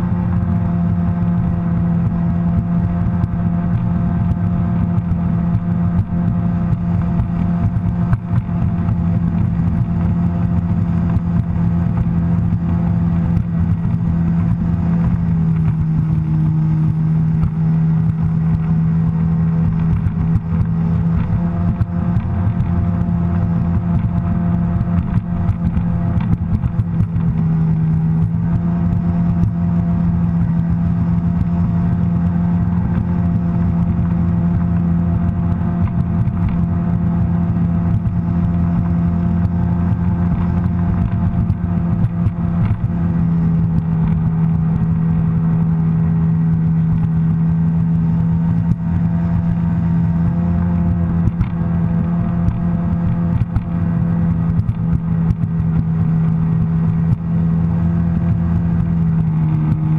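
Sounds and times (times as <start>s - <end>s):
watercraft engine running: 0.0s - 59.9s.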